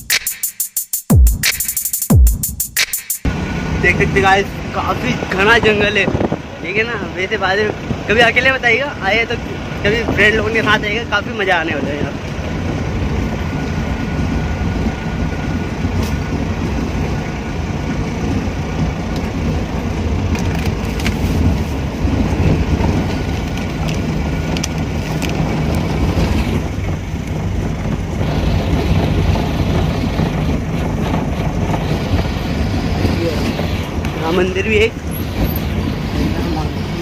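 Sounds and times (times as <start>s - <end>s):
vehicle engine: 3.2s - 37.0s
tyre noise on rough road: 3.3s - 37.0s.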